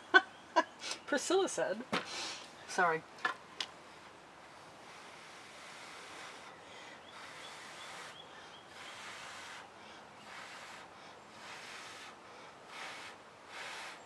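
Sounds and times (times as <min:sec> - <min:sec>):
person blowing breathy hiss: 0:02.1 - 0:02.5, 0:04.8 - 0:14.0.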